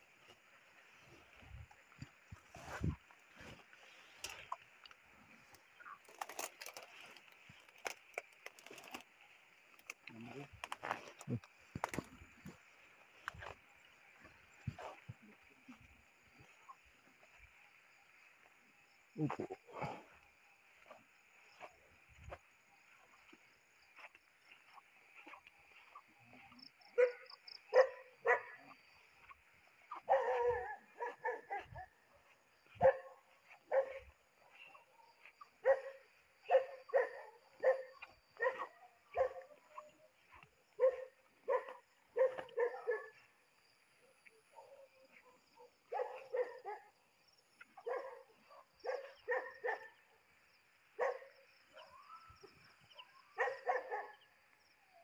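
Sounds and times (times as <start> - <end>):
night insects or frogs chorus: 0.0 - 55.0
animal barking calls: 25.2 - 43.3, 44.6 - 46.9, 47.6 - 50.1, 51.0 - 54.3.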